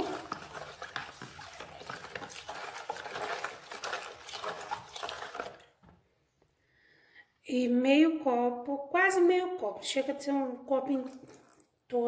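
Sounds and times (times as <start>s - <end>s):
metal spoon stirring in bowl: 0.0s - 5.8s
liquid sloshing: 0.0s - 6.0s.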